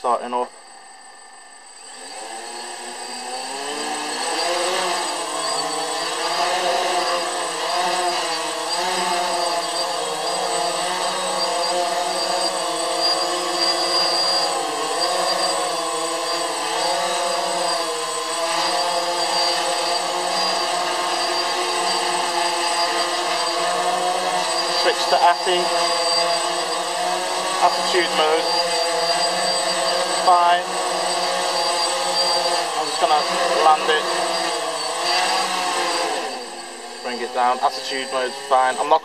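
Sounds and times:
drone propellers buzzing: 0:00.0 - 0:39.0.

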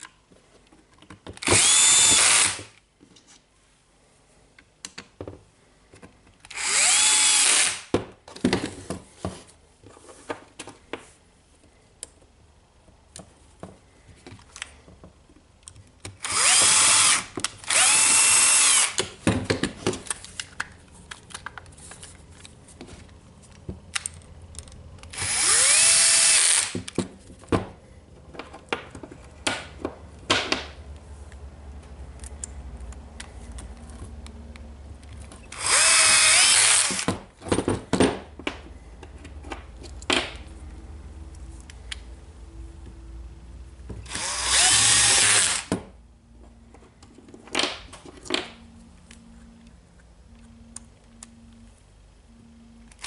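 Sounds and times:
cordless drill motor whining: 0:01.4 - 0:02.7, 0:06.5 - 0:07.8, 0:16.2 - 0:19.0, 0:25.1 - 0:26.8, 0:35.5 - 0:37.1, 0:44.1 - 0:45.7.

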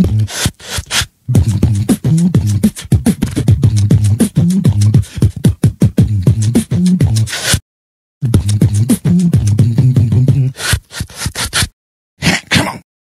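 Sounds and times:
humming vocal bass line: 0:00.0 - 0:00.3, 0:01.3 - 0:07.4, 0:08.2 - 0:10.6
beatboxing kick and snare clicks: 0:00.0 - 0:07.6, 0:08.2 - 0:11.7.

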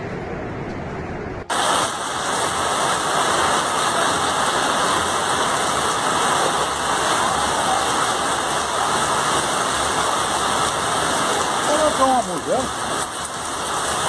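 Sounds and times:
heavy rain pouring: 0:01.4 - 0:14.0
floodwater rushing: 0:01.5 - 0:14.0.

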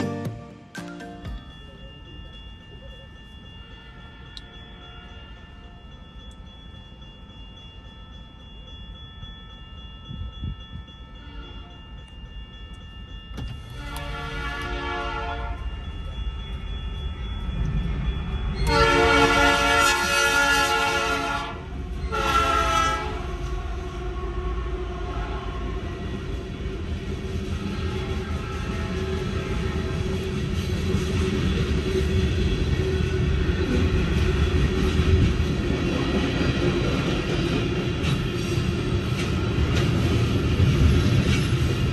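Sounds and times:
locomotive horn blasts: 0:13.7 - 0:15.7, 0:18.6 - 0:23.3, 0:27.8 - 0:29.2.

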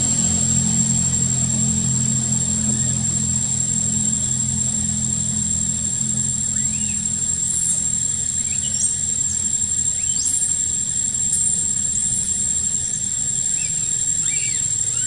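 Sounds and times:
high chirps and squeals: 0:00.0 - 0:15.0
high-pitched insect drone: 0:00.0 - 0:15.0.

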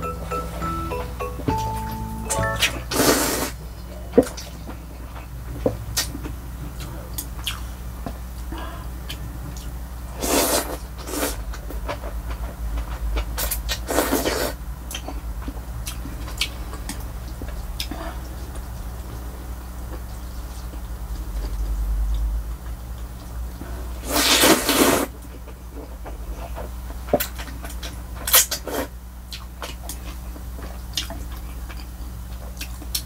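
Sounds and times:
person slurping noodles: 0:02.9 - 0:03.6, 0:10.2 - 0:11.4, 0:13.9 - 0:14.6, 0:24.0 - 0:25.1
chewing and mouth clicks: 0:05.9 - 0:07.7, 0:25.3 - 0:33.0.

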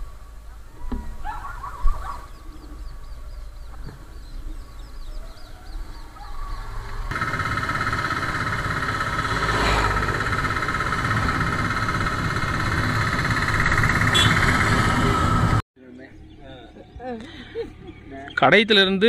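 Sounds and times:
road and wind rumble: 0:00.0 - 0:15.6
motorcycle engine running: 0:06.9 - 0:15.6
high buzz: 0:07.1 - 0:14.4.

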